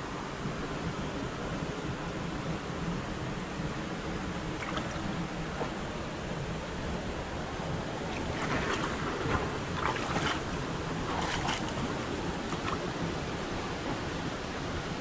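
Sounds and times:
river water flowing among boulders: 0.0s - 15.0s
loud water splashes: 8.0s - 13.2s.

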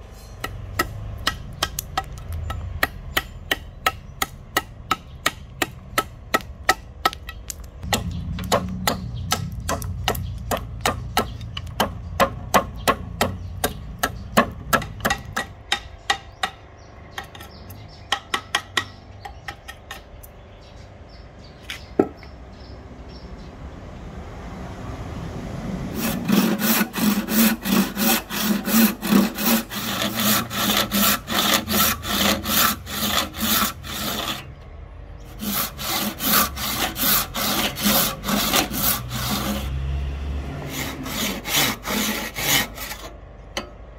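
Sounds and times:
wooden mallet striking knife: 0.4s - 16.6s
handsaw cutting wood: 25.9s - 34.5s, 35.3s - 43.2s.

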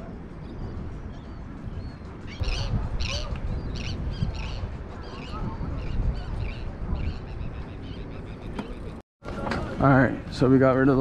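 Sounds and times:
wind on microphone: 0.0s - 9.8s
birds calling: 0.4s - 9.0s.

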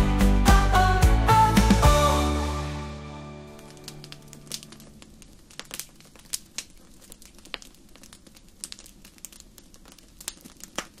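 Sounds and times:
fire crackling and popping: 3.4s - 11.0s.

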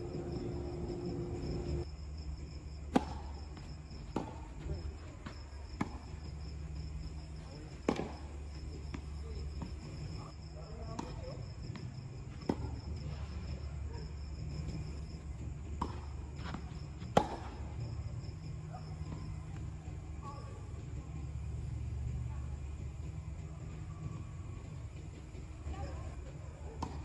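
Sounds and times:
low hum: 0.0s - 4.6s
crickets chirping: 0.0s - 27.0s
racket striking tennis ball: 2.9s - 3.5s, 4.1s - 4.5s, 7.9s - 8.2s, 17.0s - 17.7s
tennis ball bouncing: 2.9s - 6.1s, 7.7s - 8.3s, 10.8s - 13.3s, 15.6s - 17.9s, 26.8s - 27.0s.

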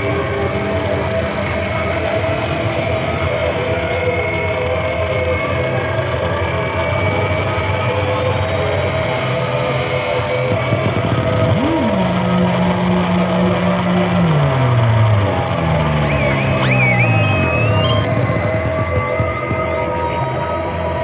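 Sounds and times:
droning tones: 0.0s - 21.0s
hiss and hum: 10.5s - 21.0s
low tone swooping: 15.8s - 21.0s
thin high whistling tones: 16.0s - 21.0s.

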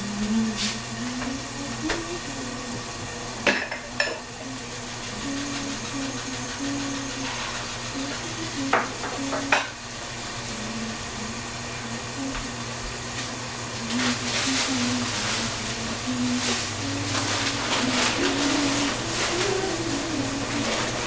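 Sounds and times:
food sizzling in a pan: 0.6s - 12.1s.

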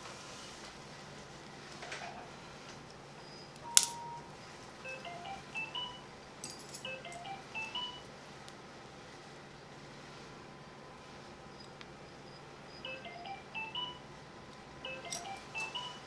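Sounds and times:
short beep: 3.6s - 4.3s, 14.8s - 16.0s
rising electronic tones: 12.8s - 14.1s.

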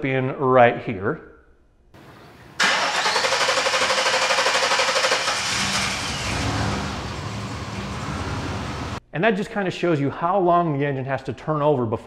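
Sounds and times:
engine running: 2.0s - 9.0s
engine starter cranking: 2.6s - 7.9s.

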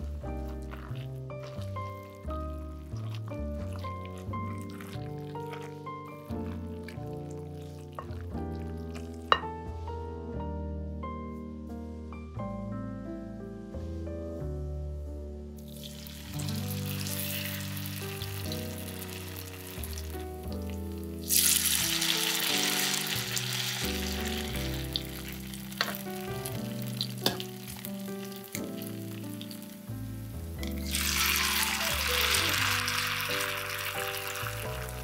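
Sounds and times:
background piano music: 0.0s - 35.0s
food sizzling in oil: 15.7s - 35.0s.

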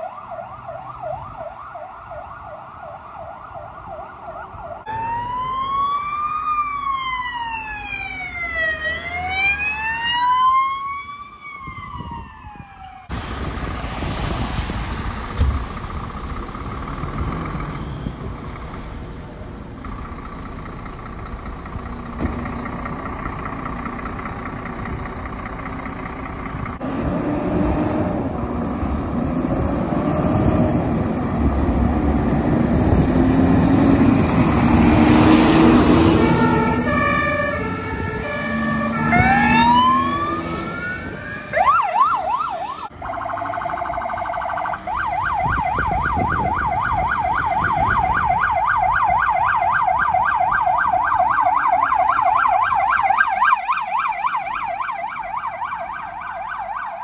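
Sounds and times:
siren slow rising wail: 0.0s - 13.2s, 26.8s - 57.0s
engine and road noise on wet street: 0.0s - 57.0s
siren fast warbling yelp: 38.3s - 57.0s.

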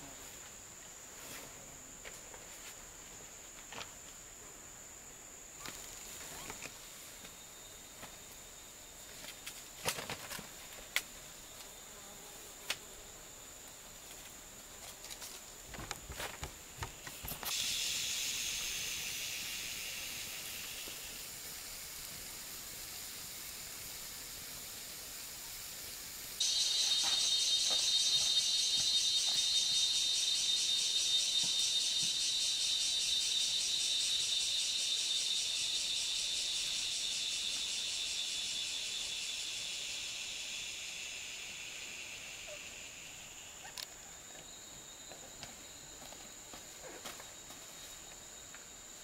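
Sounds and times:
high insect drone: 0.0s - 49.0s
loud high hiss: 17.1s - 43.7s
pulsing high buzz: 26.4s - 32.1s.

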